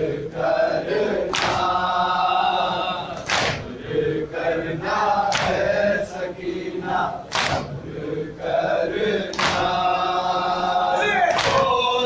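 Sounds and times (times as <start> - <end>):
people chanting in unison: 0.0 - 12.0
hands slapping chests: 1.3 - 1.7, 3.2 - 3.7, 5.3 - 5.7, 7.3 - 7.8, 9.3 - 9.8, 11.3 - 11.8.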